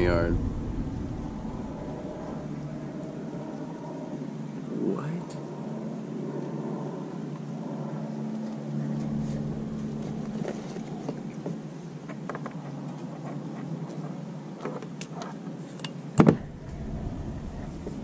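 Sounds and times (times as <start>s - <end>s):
low motor hum: 0.0s - 12.0s, 16.2s - 18.0s.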